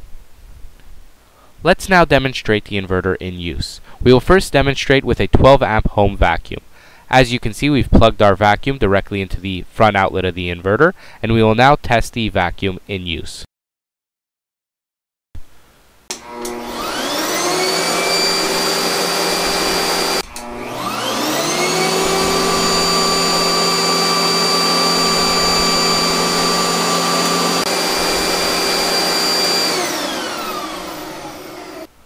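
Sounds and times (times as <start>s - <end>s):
vacuum cleaner switch click: 16.1s - 16.8s, 20.2s - 21.0s
vacuum cleaner motor whine: 16.1s - 32.0s.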